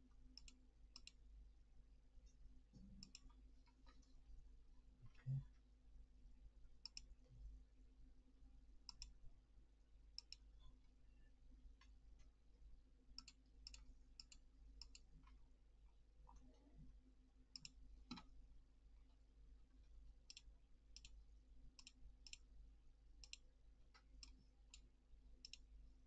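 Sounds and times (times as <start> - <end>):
computer mouse clicks: 0.3 - 1.2, 2.8 - 4.1, 6.8 - 7.1, 8.9 - 9.2, 10.2 - 10.5, 13.2 - 15.4, 17.5 - 18.3, 20.3 - 21.2, 21.8 - 22.4, 23.2 - 25.7.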